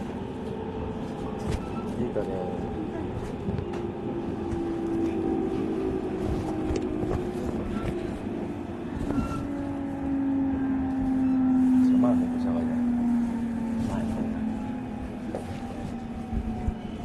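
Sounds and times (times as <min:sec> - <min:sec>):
train traction motor whine: 0:03.5 - 0:17.0.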